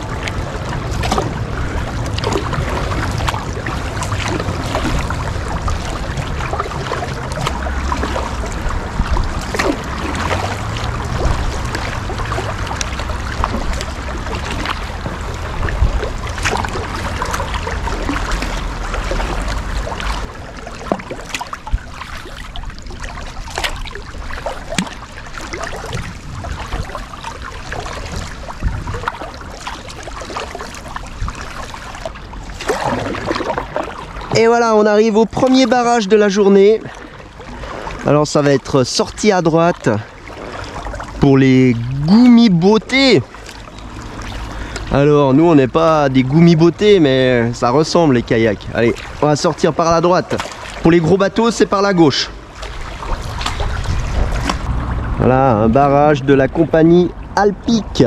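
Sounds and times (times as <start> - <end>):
paddle blades splashing: 0.0 - 58.0
water dripping and trickling: 0.0 - 58.0
low rumble: 52.3 - 57.4.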